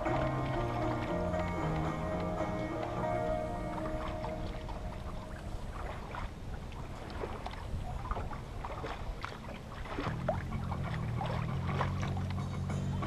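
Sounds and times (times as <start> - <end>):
background music: 0.0 - 5.6, 10.5 - 13.0
water splashing along hull: 0.0 - 13.0.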